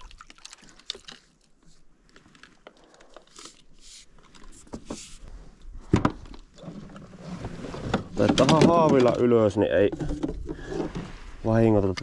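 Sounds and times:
fishing tackle clicking and rustling: 0.1 - 4.6.

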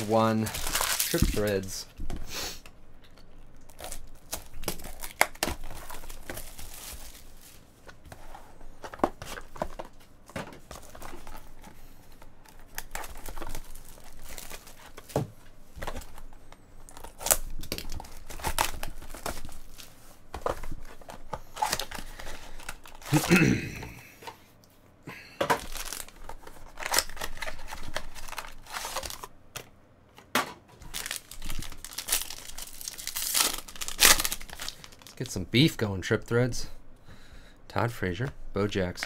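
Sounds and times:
wrapper crinkling and tearing: 0.0 - 1.9, 3.1 - 7.7, 12.4 - 15.1, 15.8 - 19.9, 25.6 - 29.3, 30.8 - 35.4.

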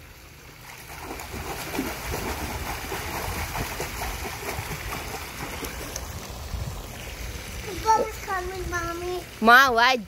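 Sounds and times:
feet splashing water: 0.5 - 7.3.

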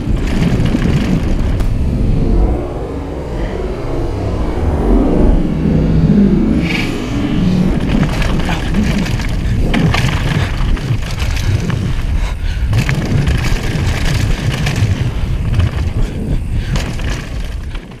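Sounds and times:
tyres crunching over stones: 0.0 - 1.6, 7.6 - 18.0
bike clattering over bumps: 0.0 - 1.7, 7.6 - 18.0
wind rumble on microphone: 0.0 - 18.0.

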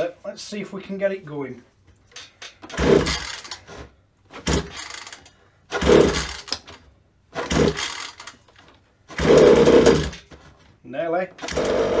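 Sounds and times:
small engine turning over: 2.7 - 3.7, 4.4 - 6.8, 7.4 - 8.5, 9.1 - 10.2.

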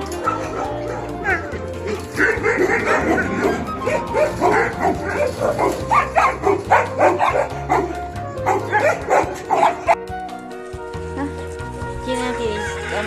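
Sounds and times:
dogs barking and yipping: 0.0 - 10.1
background music: 0.0 - 13.0.

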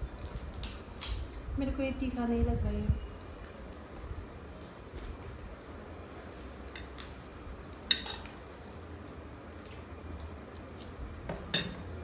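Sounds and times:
metal spoon clinking on metal plate: 7.9 - 8.3, 11.5 - 11.8.

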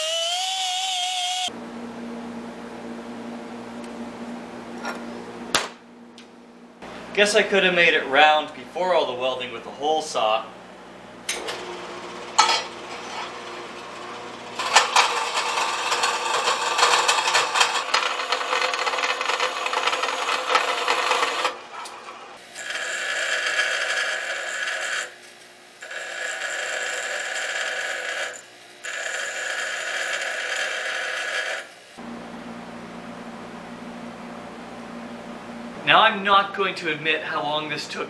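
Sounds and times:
band saw cutting steel: 0.0 - 1.5, 11.3 - 25.2
bench grinder grinding steel: 0.0 - 1.5, 11.3 - 25.2, 25.8 - 32.0.

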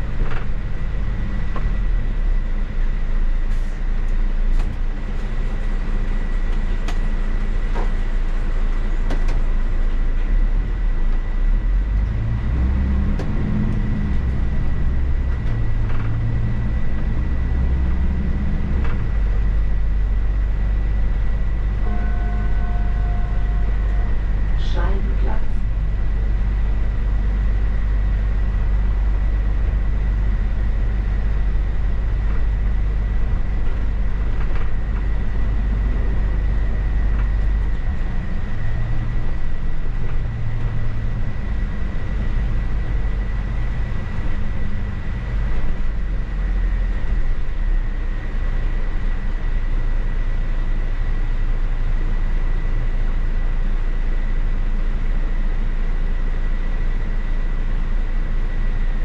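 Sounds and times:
bus engine and road rumble: 0.0 - 59.0
thin high whine: 21.7 - 25.8.

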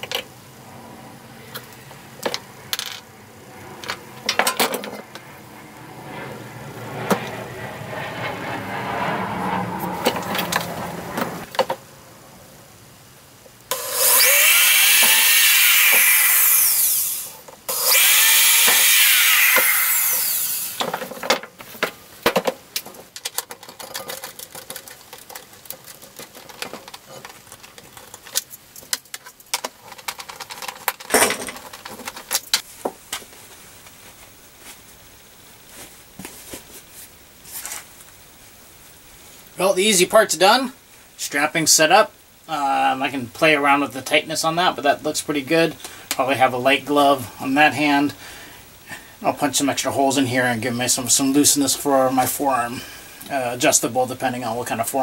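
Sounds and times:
power drill running: 13.7 - 20.9
small clicks and knocks: 20.8 - 33.3.

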